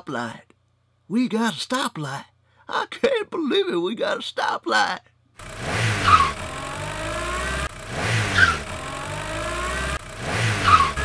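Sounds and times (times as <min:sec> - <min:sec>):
car engine revving: 0:05.4 - 0:11.0.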